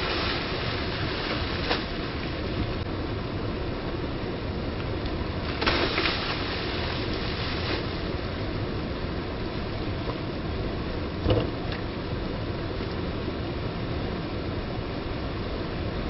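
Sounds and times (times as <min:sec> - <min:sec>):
water splash: 0:00.0 - 0:02.4, 0:05.4 - 0:08.2
stream pouring over waterfall: 0:00.0 - 0:02.8, 0:05.3 - 0:08.6
short thump: 0:11.2 - 0:11.5.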